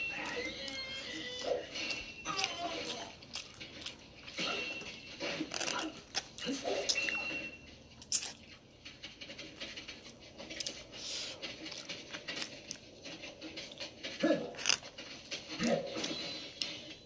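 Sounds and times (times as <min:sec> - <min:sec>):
chewing: 0:00.1 - 0:04.6, 0:08.0 - 0:08.6.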